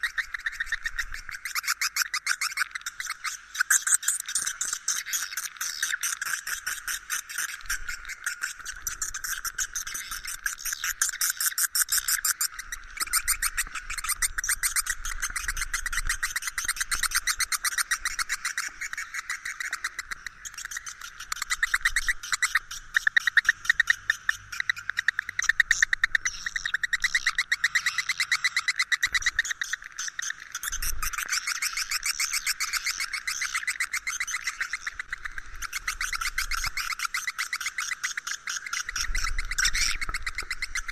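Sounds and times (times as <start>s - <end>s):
high-pitched bird twittering: 0.0s - 40.9s.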